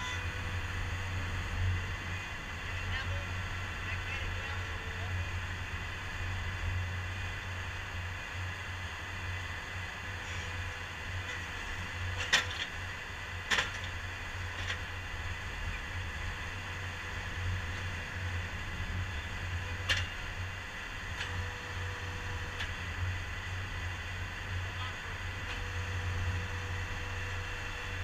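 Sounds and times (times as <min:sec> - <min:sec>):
loader engine running: 0:00.0 - 0:28.0.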